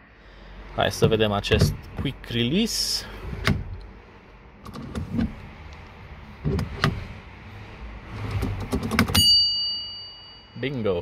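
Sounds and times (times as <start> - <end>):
steering wheel clicks and clunks: 0.9 - 2.2, 3.3 - 3.9, 4.6 - 7.1, 8.2 - 9.4.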